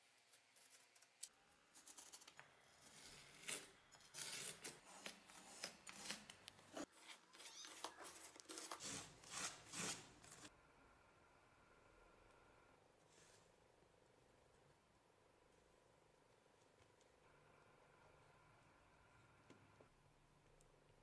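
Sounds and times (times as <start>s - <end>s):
blade scraping sheet material: 2.8s - 10.5s.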